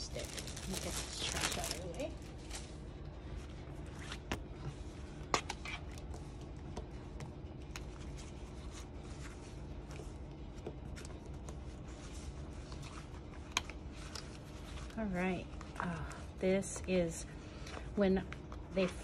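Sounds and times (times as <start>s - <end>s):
paper rustling: 0.0s - 2.8s
steady low hum: 0.0s - 19.0s.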